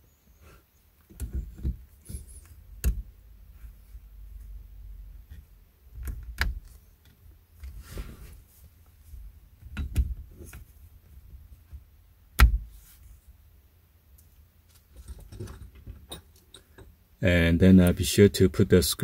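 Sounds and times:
soft plastic rubbing: 6.6 - 9.3.

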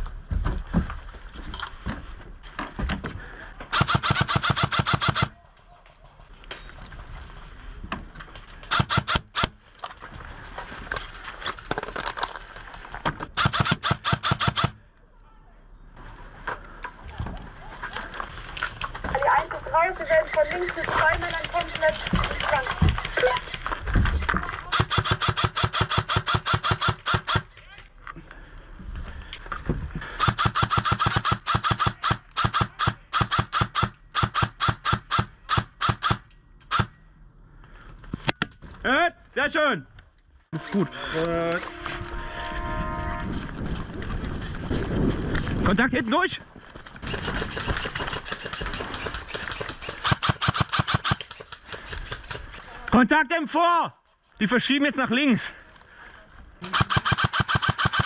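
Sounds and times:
airsoft gun firing sharp shots: 3.7 - 5.4, 8.7 - 9.6, 13.4 - 14.8, 24.6 - 27.5, 30.2 - 36.9, 47.0 - 52.4, 56.6 - 58.0.

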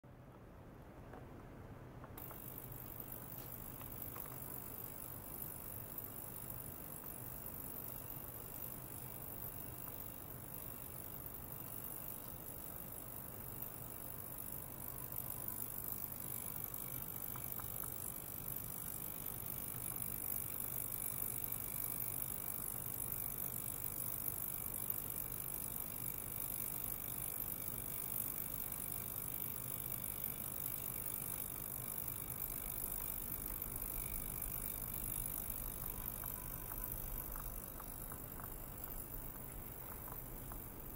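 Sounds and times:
ultrasonic cleaner humming: 29.2 - 40.9.

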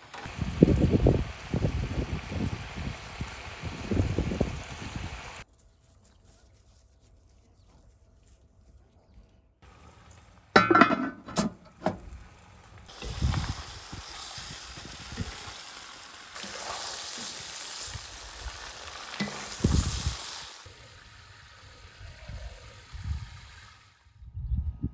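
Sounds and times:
meat sizzling in a pan: 12.8 - 23.9.

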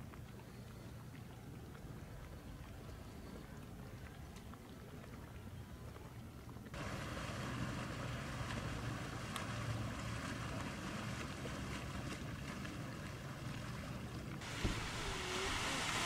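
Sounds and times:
boat motor humming: 0.0 - 16.0
small waves: 0.0 - 16.0
wind: 0.0 - 16.0.

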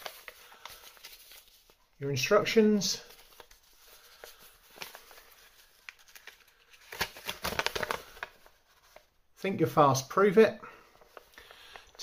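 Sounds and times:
paper rustling and crinkling: 0.0 - 1.8, 2.9 - 9.2.

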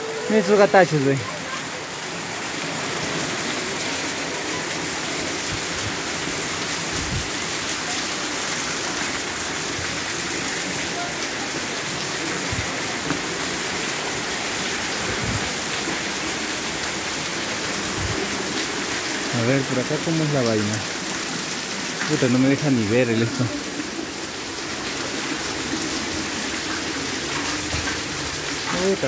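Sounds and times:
heavy rain on a tile roof: 0.0 - 29.0.

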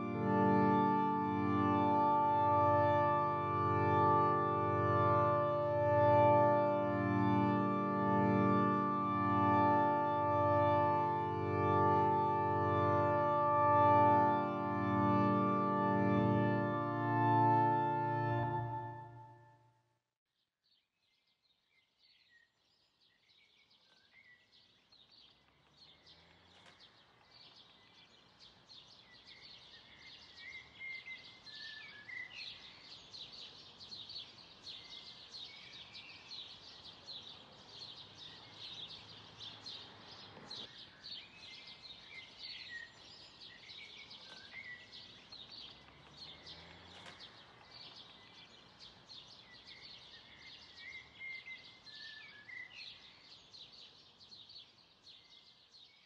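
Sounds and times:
whistling bird calls: 49.6 - 53.0.

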